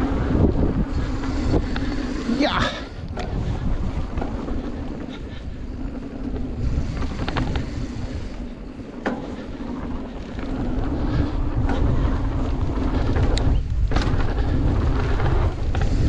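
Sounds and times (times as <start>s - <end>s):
wind on microphone: 0.0s - 16.0s
bike knocks and rattles: 8.8s - 16.0s
tyre rumble on dirt: 8.9s - 16.0s.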